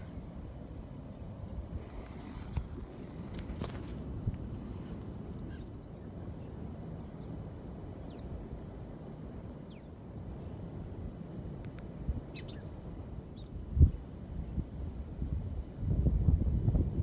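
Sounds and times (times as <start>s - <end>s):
wind rumbling on microphone: 0.0s - 17.0s
faint bird chirps: 12.3s - 12.7s.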